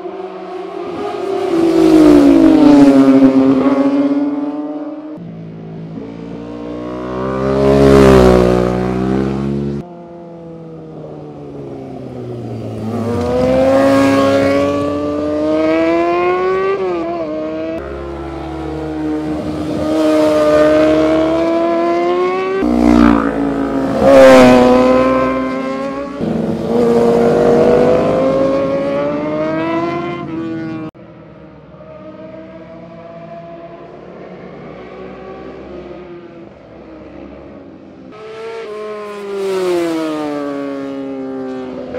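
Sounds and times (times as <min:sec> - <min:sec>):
motorcycles revving past: 0:05.9 - 0:09.8, 0:11.7 - 0:30.9, 0:38.0 - 0:41.9.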